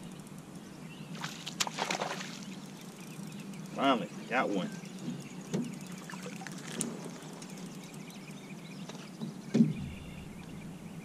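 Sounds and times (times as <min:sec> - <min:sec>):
water splashing: 0:01.2 - 0:03.2, 0:05.1 - 0:07.9
loud thump: 0:09.5 - 0:10.4.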